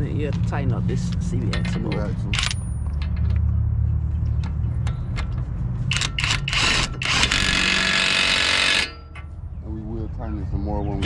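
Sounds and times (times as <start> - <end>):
sharp tool clicks: 4.4 - 9.2
impact wrench hammering: 4.8 - 9.3.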